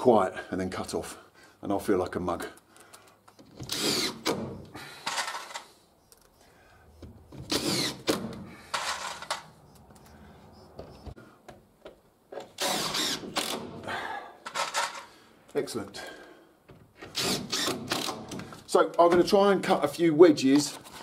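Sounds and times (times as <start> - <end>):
cordless drill driving screws: 3.3 - 5.7, 7.0 - 9.8, 12.6 - 13.8, 17.0 - 18.5.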